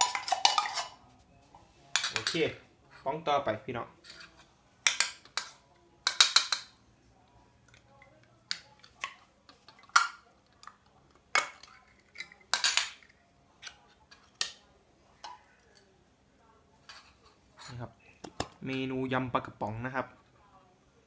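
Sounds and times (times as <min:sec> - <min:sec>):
metal spoon clinking and scraping: 0:00.0 - 0:01.1, 0:01.9 - 0:03.1, 0:04.0 - 0:06.7, 0:07.7 - 0:14.6, 0:16.8 - 0:17.9.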